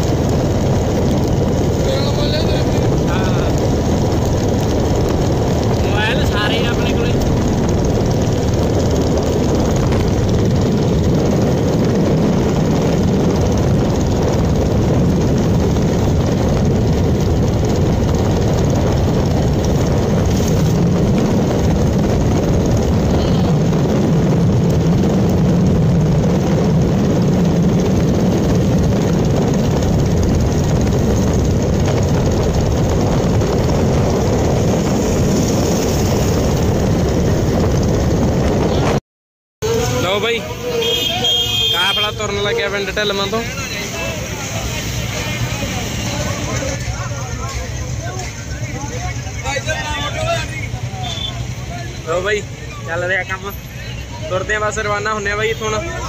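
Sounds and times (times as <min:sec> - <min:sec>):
motorcycle engine running: 0:00.0 - 0:39.0, 0:39.6 - 0:56.0
wind rushing on microphone: 0:00.0 - 0:39.0.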